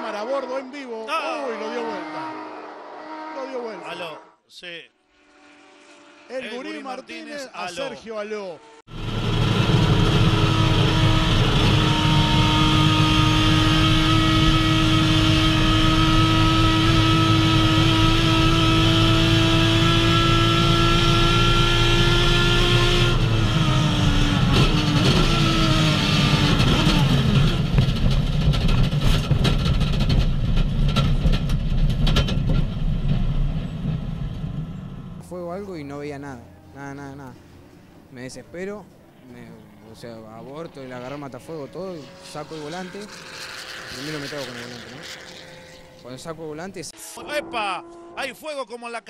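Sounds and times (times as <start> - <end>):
race car engine at high revs: 8.8 - 32.3, 40.6 - 48.2
sharp knocks and clatter: 26.5 - 34.3.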